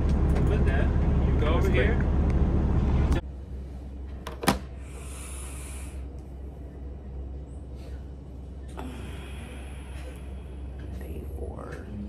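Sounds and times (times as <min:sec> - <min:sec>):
diesel engine idling: 0:00.0 - 0:03.4.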